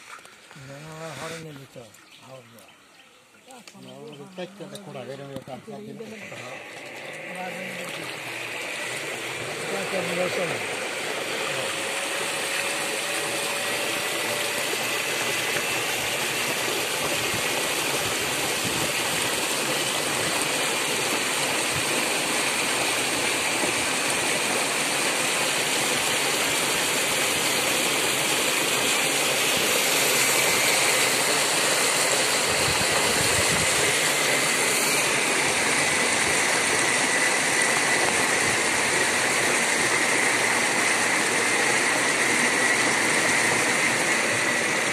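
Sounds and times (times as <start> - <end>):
faint high whine: 3.9 - 16.6
floodwater rushing and splashing: 5.8 - 44.9.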